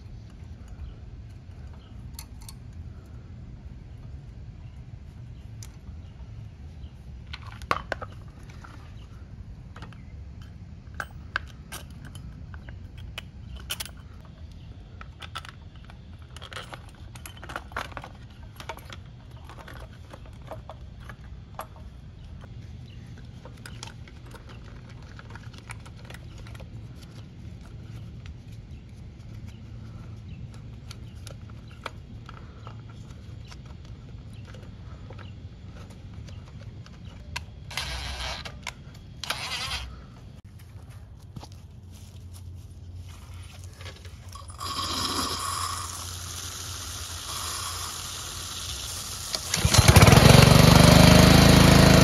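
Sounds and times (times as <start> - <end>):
clicks and rattles of engine parts: 9.7 - 28.3, 48.0 - 51.0.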